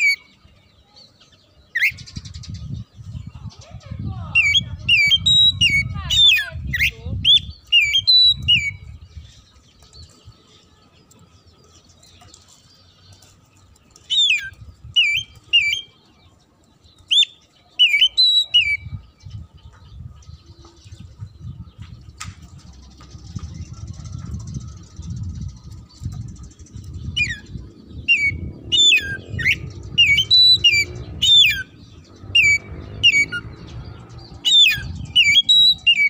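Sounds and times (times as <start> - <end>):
bird whistling song: 1.7 - 3.2, 4.3 - 10.2, 14.0 - 16.0, 17.0 - 36.0.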